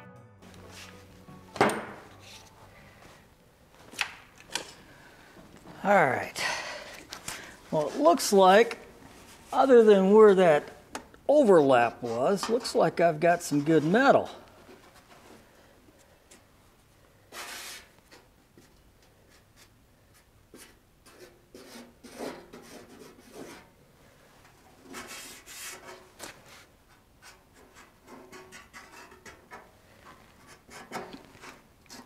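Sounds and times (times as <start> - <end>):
marker scratching on metal: 17.3 - 17.9, 20.5 - 23.7, 24.9 - 29.7, 30.4 - 32.0.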